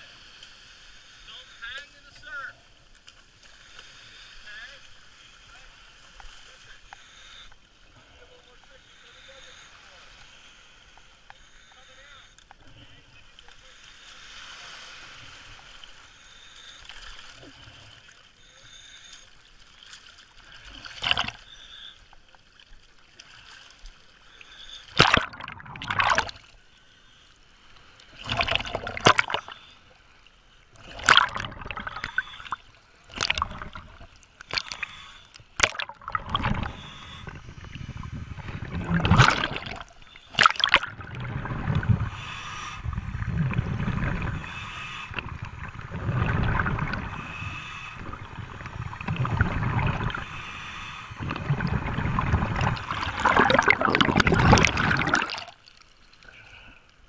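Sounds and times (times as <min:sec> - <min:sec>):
seawater sloshing and splashing: 0:19.7 - 0:21.4, 0:24.9 - 0:26.5, 0:28.1 - 0:29.6, 0:30.8 - 0:34.8, 0:35.5 - 0:50.4, 0:51.1 - 0:56.0
steady hiss: 0:41.9 - 0:43.3, 0:46.8 - 0:49.0, 0:50.0 - 0:51.2.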